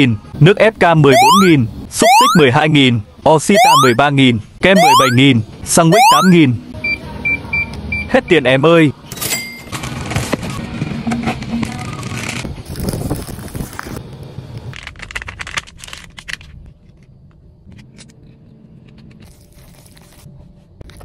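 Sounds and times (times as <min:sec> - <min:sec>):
plastic packaging tearing and crinkling: 0:12.0 - 0:14.0, 0:14.8 - 0:16.6.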